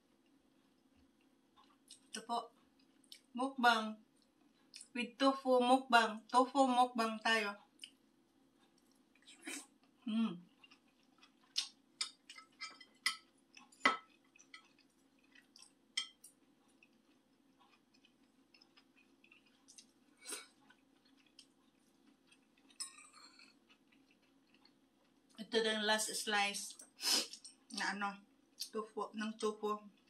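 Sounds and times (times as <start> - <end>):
faint steady hum: 0.0 - 30.0
cutlery clinking on a dish: 12.0 - 14.8, 16.0 - 16.2.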